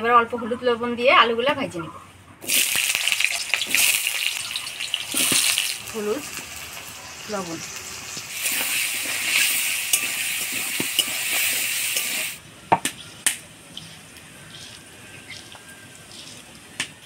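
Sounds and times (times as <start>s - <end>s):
potatoes sizzling in hot oil: 2.4s - 12.4s
spatula clicking and scraping: 9.0s - 12.2s, 13.7s - 17.0s.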